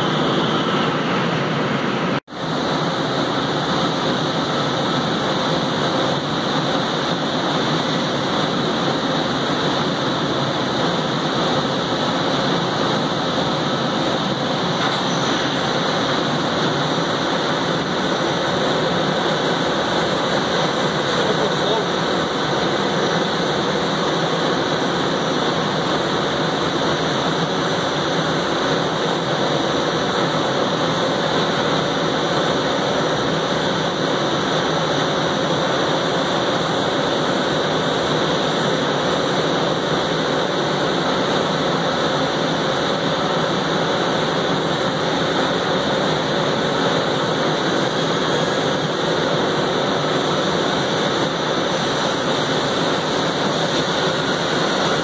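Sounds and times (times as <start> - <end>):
machine spindles whirring: 0.0 - 55.0.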